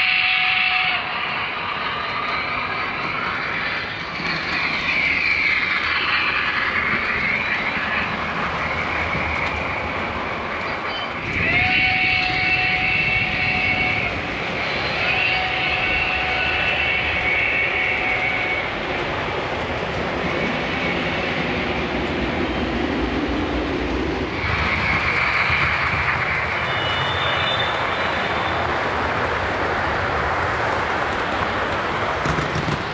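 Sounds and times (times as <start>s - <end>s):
model freight cars rumbling on track: 0.0s - 32.9s
electronic steam whistle: 26.5s - 28.6s.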